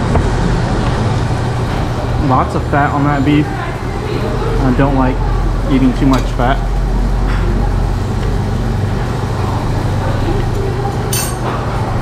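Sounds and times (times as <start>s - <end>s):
low hum of machinery: 0.0s - 12.0s
short clink: 11.1s - 11.5s.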